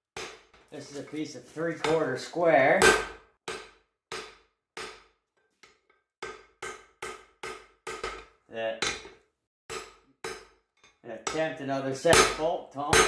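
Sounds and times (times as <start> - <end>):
hammer striking steel on anvil: 2.8 - 10.6, 11.2 - 13.0.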